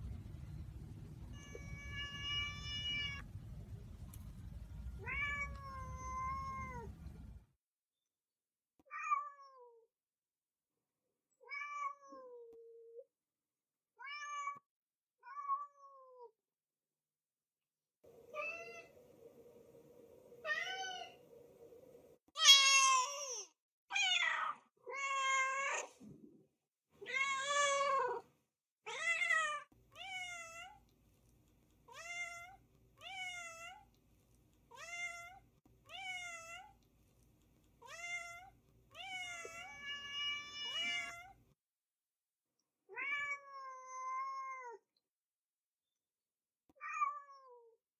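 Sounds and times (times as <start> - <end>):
cats meowing: 1.3 - 3.2, 5.0 - 7.0, 37.8 - 41.4.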